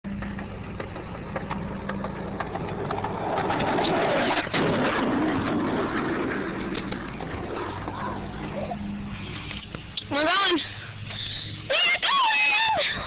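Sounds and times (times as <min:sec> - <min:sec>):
skateboard wheels rolling on asphalt: 0:00.1 - 0:10.4.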